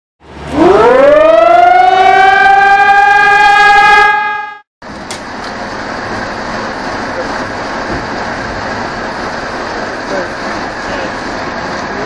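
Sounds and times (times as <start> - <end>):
siren winding up: 0.4 - 4.7.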